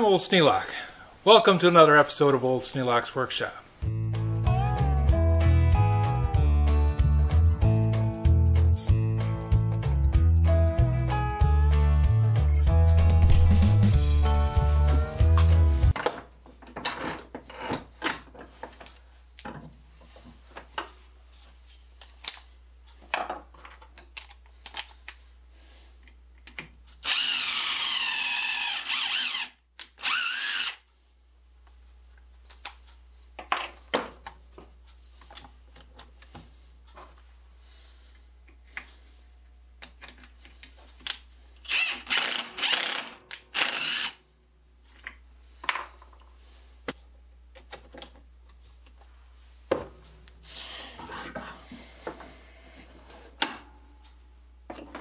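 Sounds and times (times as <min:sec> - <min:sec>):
drill boring into wood: 0:27.0 - 0:30.8, 0:41.6 - 0:44.2.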